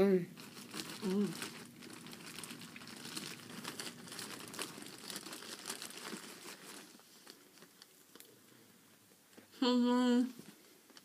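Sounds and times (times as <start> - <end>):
plastic bag crinkling: 0.3 - 8.3.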